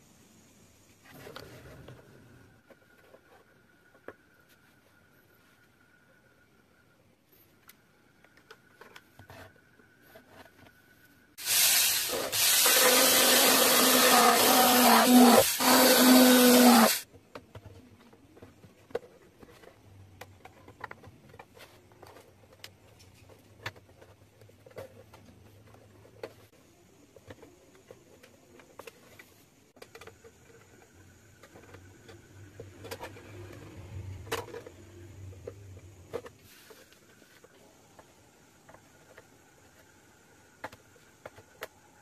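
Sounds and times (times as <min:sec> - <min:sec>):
mini rotary drill boring plastic: 0:11.4 - 0:17.0.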